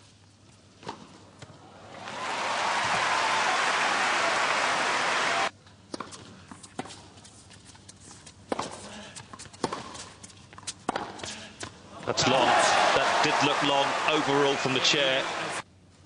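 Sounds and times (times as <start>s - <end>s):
stadium crowd applauding: 1.8s - 5.5s, 12.1s - 15.6s
racquets striking tennis ball: 8.5s - 11.7s
tennis ball bouncing: 8.5s - 11.7s.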